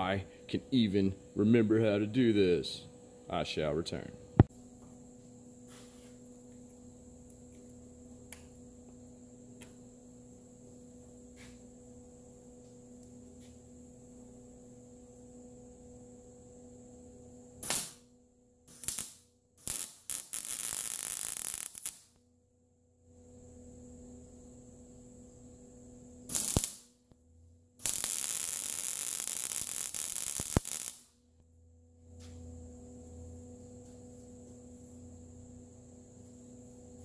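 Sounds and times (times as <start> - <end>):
steady low hum: 0.0 - 19.6, 22.2 - 37.0
welder arc sizzling and crackling: 17.6 - 18.0, 18.7 - 22.2, 26.3 - 27.0, 27.8 - 31.2.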